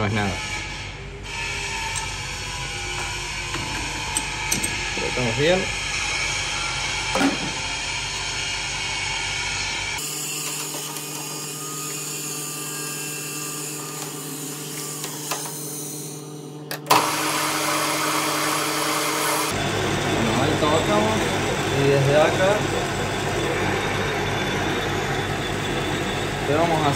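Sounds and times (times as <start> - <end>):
lathe chuck spinning: 1.3 - 8.8
lathe motor hum: 1.3 - 26.9.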